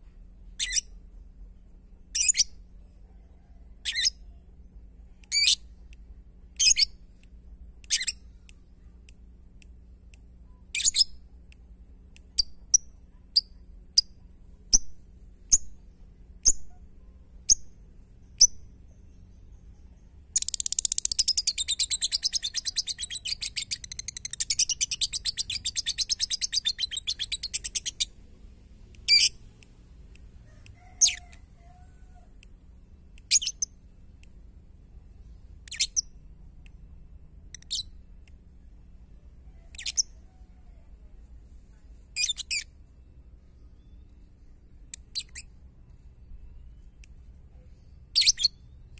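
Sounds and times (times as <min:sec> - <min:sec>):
bird chirping: 0:00.6 - 0:01.0, 0:02.1 - 0:03.0, 0:03.8 - 0:04.4, 0:05.2 - 0:05.8, 0:06.6 - 0:07.1, 0:07.8 - 0:09.0, 0:10.5 - 0:11.2, 0:12.2 - 0:28.3, 0:28.9 - 0:32.3, 0:33.1 - 0:34.0, 0:35.0 - 0:36.3, 0:37.5 - 0:38.0, 0:39.5 - 0:40.3, 0:42.2 - 0:48.9
bird clicking chatter: 0:05.2 - 0:14.9, 0:20.3 - 0:28.2, 0:28.9 - 0:31.6, 0:32.2 - 0:34.4, 0:39.7 - 0:40.2, 0:44.7 - 0:45.6.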